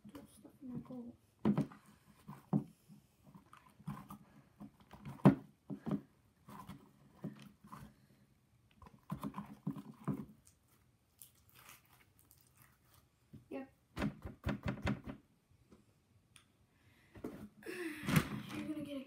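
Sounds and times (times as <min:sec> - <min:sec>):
slime squelching and popping: 0:08.7 - 0:13.4.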